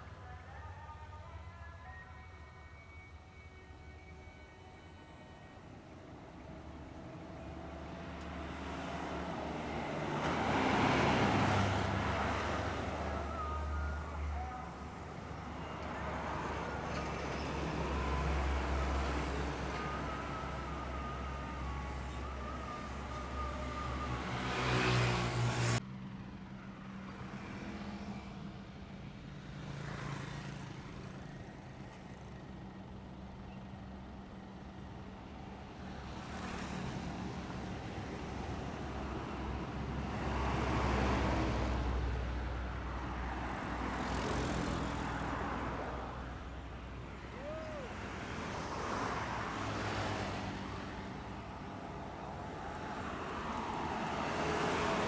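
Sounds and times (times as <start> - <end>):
cars and trucks passing: 4.9 - 55.0
diesel bus engine running: 30.8 - 40.3.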